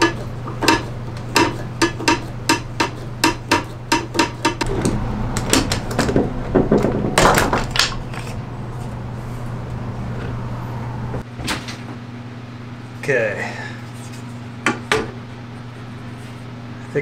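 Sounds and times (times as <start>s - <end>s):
steady low hum: 0.0s - 11.3s.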